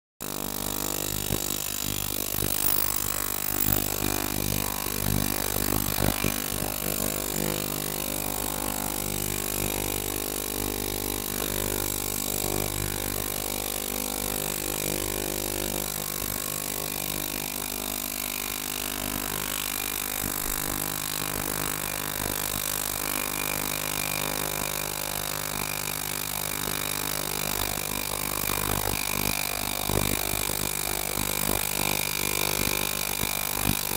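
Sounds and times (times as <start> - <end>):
ultrasonic cleaner humming: 2.2 - 8.0.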